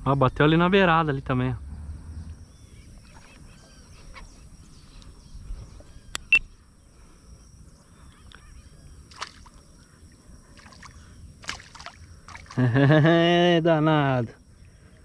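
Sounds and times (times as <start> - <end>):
low outdoor rumble: 0.0 - 11.4
high insect drone: 0.0 - 15.0
faint bird chirps: 1.0 - 11.4.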